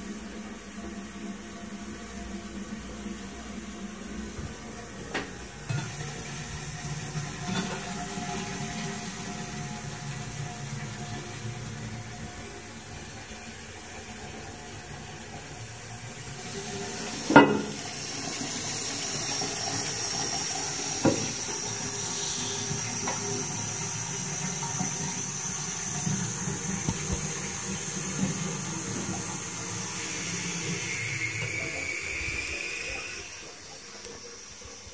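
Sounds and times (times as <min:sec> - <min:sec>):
water refilling toilet cistern: 0:00.0 - 0:34.9
thin rising whistle: 0:30.0 - 0:33.6.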